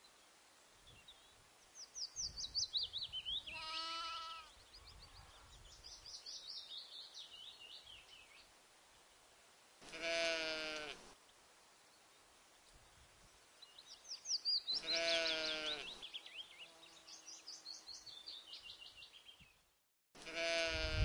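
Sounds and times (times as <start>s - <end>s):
small bird singing: 0.9s - 8.5s, 13.6s - 19.6s
sheep bleating: 3.5s - 4.5s, 9.9s - 11.0s, 14.8s - 15.9s, 20.2s - 21.0s.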